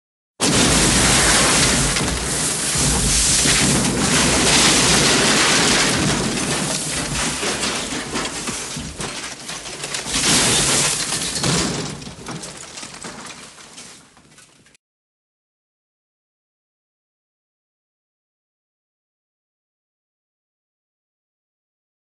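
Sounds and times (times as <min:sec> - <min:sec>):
crashing rumble: 0:00.4 - 0:14.2
debris clattering: 0:00.4 - 0:14.8.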